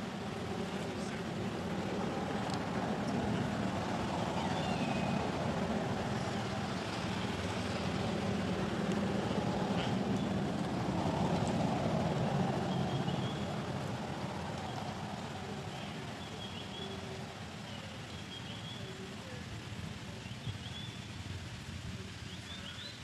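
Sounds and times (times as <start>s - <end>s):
distant traffic rumble: 0.0s - 23.0s.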